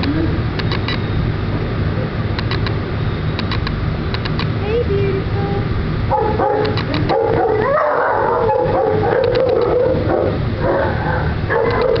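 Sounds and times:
short clicks: 0.0s - 1.0s, 2.4s - 4.6s, 9.2s - 9.7s, 11.6s - 12.0s
dog whining howl: 7.1s - 12.0s.

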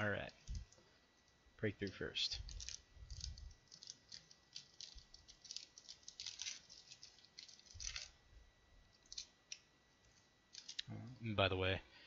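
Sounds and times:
foil wrapper crinkling: 2.4s - 8.2s, 9.0s - 9.6s, 10.5s - 10.8s.

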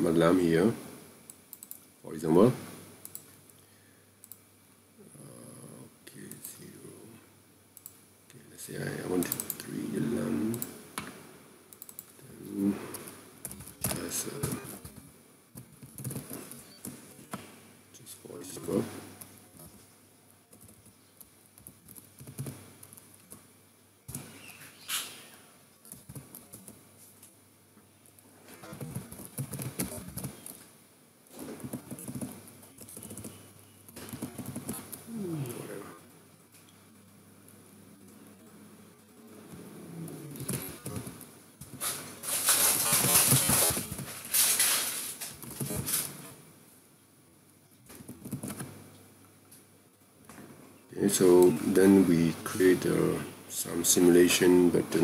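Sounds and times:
computer keyboard typing: 1.5s - 1.8s, 9.2s - 9.6s, 12.9s - 15.0s, 15.6s - 17.0s, 20.5s - 23.4s, 25.9s - 26.8s, 28.8s - 30.6s, 31.6s - 35.1s, 40.4s - 41.3s, 47.9s - 48.7s.

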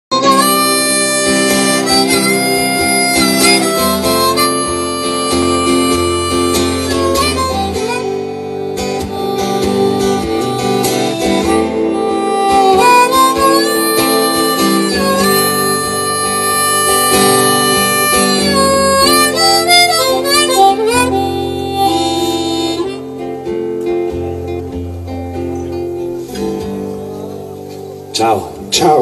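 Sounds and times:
acoustic guitar: 0.1s - 29.0s
harmonica melody: 0.1s - 29.0s.

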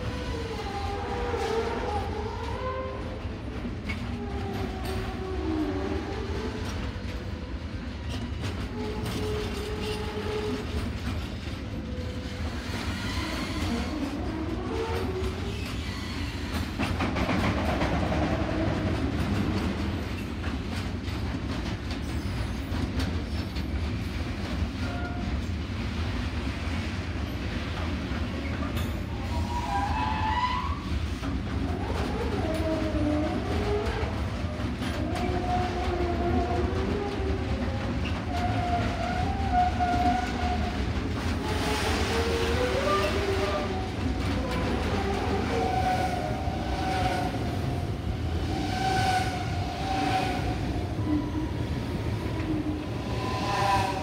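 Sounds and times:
freight train rumbling past: 0.0s - 54.0s.

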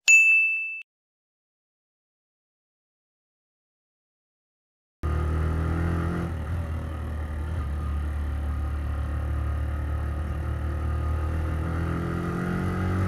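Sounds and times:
motorcycle engine running: 5.0s - 13.0s.

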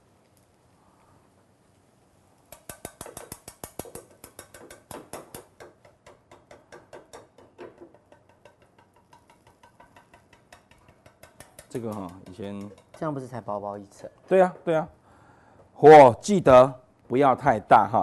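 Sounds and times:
chopsticks clicking against a pan: 2.5s - 5.4s, 8.0s - 13.2s.

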